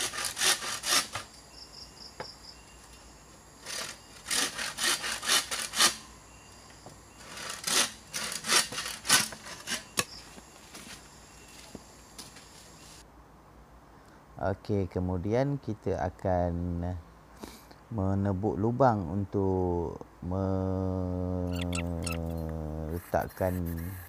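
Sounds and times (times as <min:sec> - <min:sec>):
saw cutting bamboo: 0:00.0 - 0:01.3, 0:03.6 - 0:06.0, 0:07.2 - 0:10.0.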